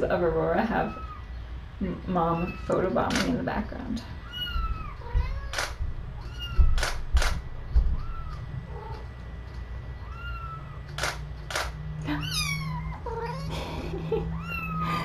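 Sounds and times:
sharp clicks: 0:03.1 - 0:03.4, 0:05.5 - 0:05.8, 0:06.6 - 0:07.4, 0:10.8 - 0:11.8
kittens mewing: 0:04.2 - 0:05.6, 0:07.9 - 0:09.1, 0:10.0 - 0:10.9, 0:12.0 - 0:15.0
low thumps: 0:04.5 - 0:08.7.

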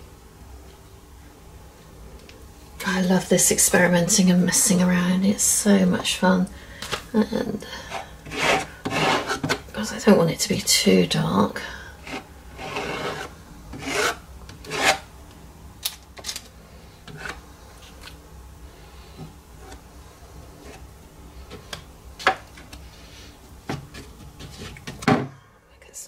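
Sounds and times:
quiet rubbing: 0:07.8 - 0:09.6, 0:12.0 - 0:15.0
card scraping paint on canvas: 0:08.0 - 0:09.6, 0:12.1 - 0:15.0.

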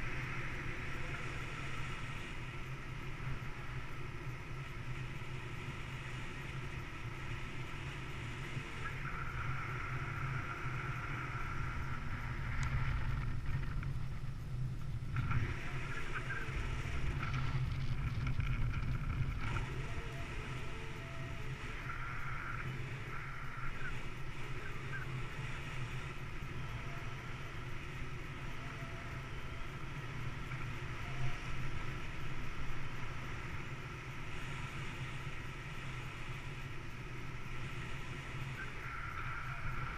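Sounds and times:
wind rushing over microphone: 0:00.0 - 0:39.9
high wind whistle: 0:36.4 - 0:39.9.

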